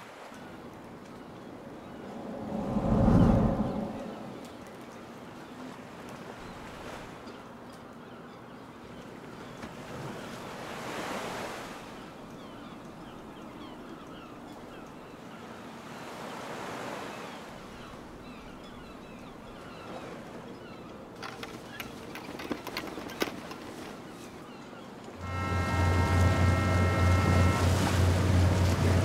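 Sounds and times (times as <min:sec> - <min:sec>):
wind: 0:00.0 - 0:29.0
sea waves washing in: 0:01.7 - 0:05.0, 0:25.2 - 0:29.0.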